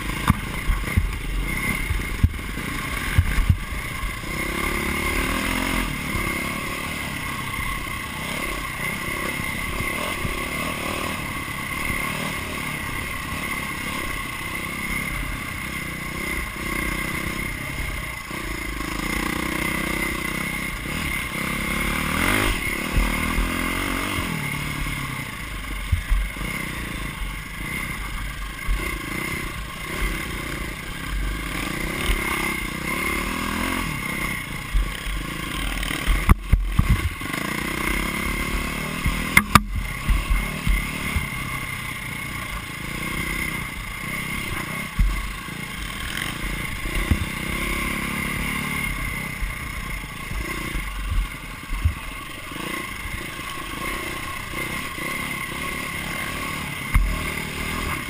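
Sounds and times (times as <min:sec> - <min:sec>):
motorcycle engine revving: 0:00.0 - 0:58.0
sharp knocks: 0:39.2 - 0:41.3.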